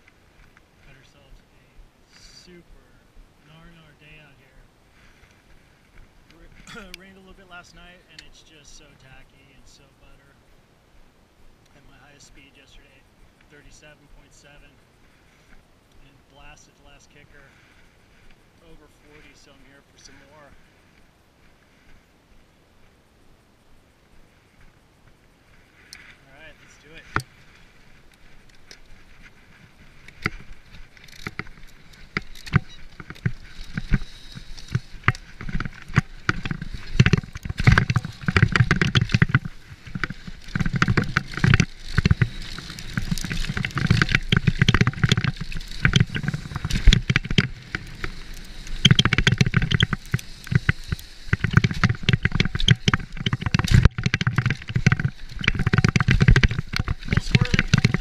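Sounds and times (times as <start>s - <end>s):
bike tyres on dirt: 0.0s - 58.0s
wind rumbling on microphone: 23.8s - 58.0s
bike rattling and knocking: 27.0s - 58.0s.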